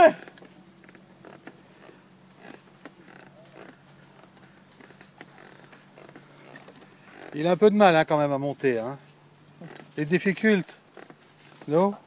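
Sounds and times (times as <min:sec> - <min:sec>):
forest insects droning: 0:00.0 - 0:12.0
faint knocks and rustles: 0:00.2 - 0:07.6.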